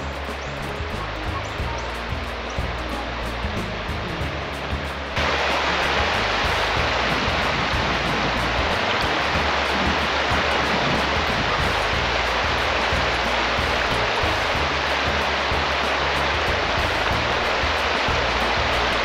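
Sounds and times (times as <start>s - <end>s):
music with low sustained notes: 0.0s - 19.0s
steady rushing noise: 0.0s - 19.0s.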